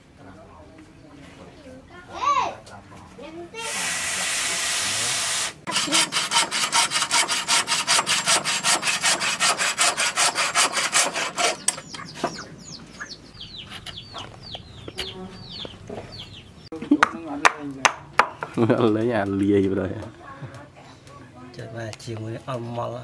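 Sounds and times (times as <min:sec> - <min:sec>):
bow saw cutting wood: 0:03.6 - 0:12.4
high falling chirps: 0:11.3 - 0:16.7.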